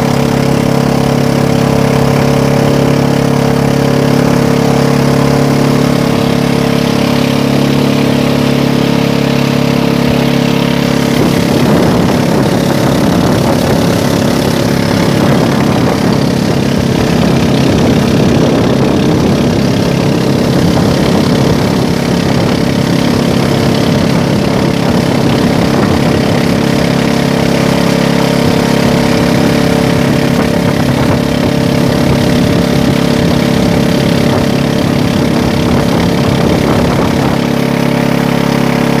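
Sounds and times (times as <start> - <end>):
boat engine droning: 0.0 - 39.0.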